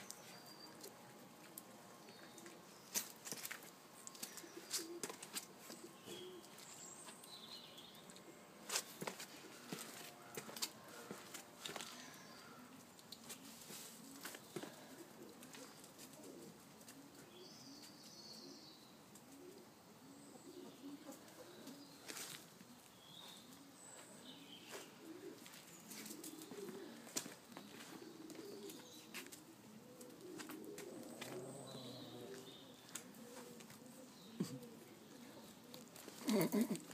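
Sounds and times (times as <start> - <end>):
faint pigeon cooing: 0.0 - 7.2, 7.9 - 36.9.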